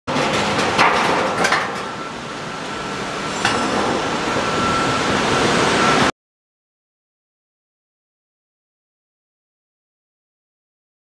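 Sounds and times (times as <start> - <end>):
machine noise with high whine: 0.1 - 6.2
sharp metallic clanks: 3.3 - 4.2.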